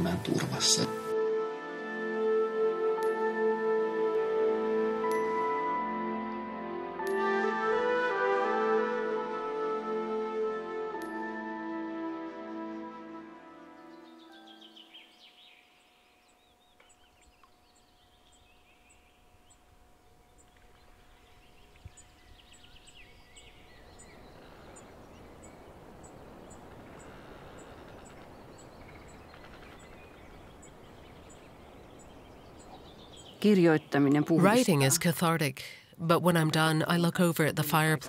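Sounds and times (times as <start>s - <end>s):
birds singing and chirping: 13.7s - 35.4s.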